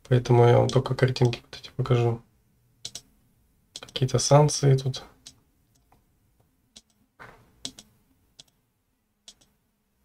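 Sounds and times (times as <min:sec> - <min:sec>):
computer mouse clicking: 0:02.8 - 0:03.1, 0:03.8 - 0:04.1, 0:06.8 - 0:07.0, 0:07.6 - 0:08.6, 0:09.3 - 0:09.6.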